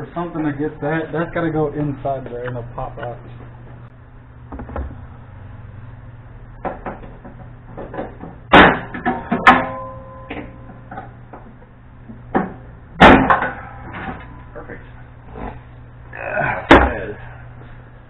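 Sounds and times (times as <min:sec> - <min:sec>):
metal clanks on car body: 0:06.7 - 0:11.2, 0:12.3 - 0:14.3
metal ringing tone: 0:09.3 - 0:11.2.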